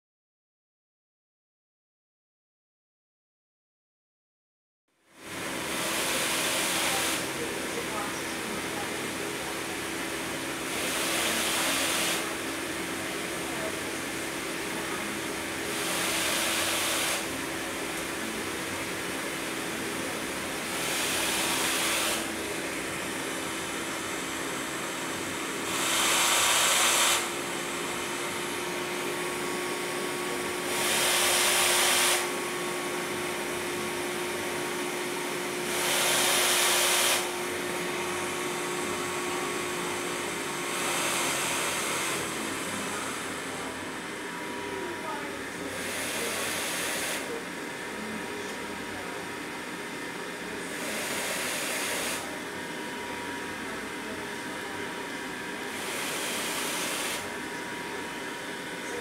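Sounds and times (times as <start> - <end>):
ventilator air rush: 5.2 - 48.9, 49.6 - 53.5, 54.1 - 59.0
ventilator steady hum: 5.2 - 59.0.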